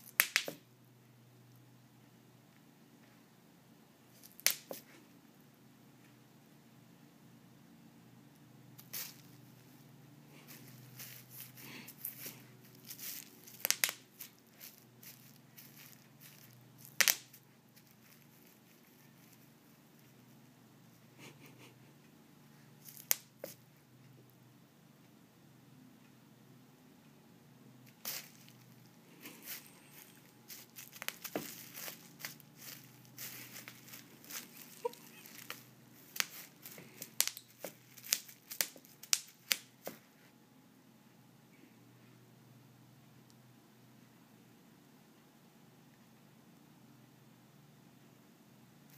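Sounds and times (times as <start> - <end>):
bubble wrap snapping: 0.0 - 0.6, 4.2 - 4.9, 8.8 - 9.4, 10.4 - 19.5, 22.9 - 23.6, 27.9 - 40.0
bubble wrap crinkling: 4.1 - 4.9, 8.8 - 9.7, 10.3 - 20.1, 27.9 - 40.0.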